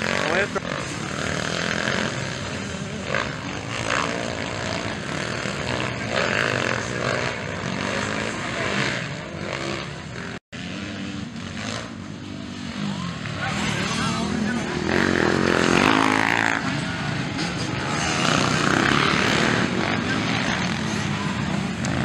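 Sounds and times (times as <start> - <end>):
dirt bike engines revving: 0.0 - 22.0.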